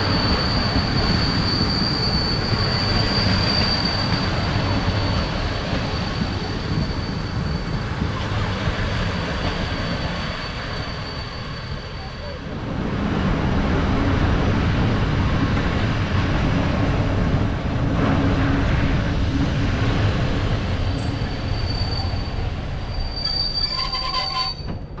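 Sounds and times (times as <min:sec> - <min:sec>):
high wheel squeal: 0:00.0 - 0:12.5, 0:20.8 - 0:24.8
diesel train rumbling on rails: 0:00.0 - 0:25.0.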